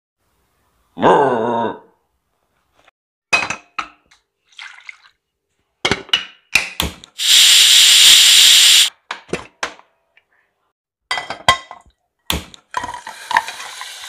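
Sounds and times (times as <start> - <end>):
pressure cooker whistle hissing: 7.2 - 8.9.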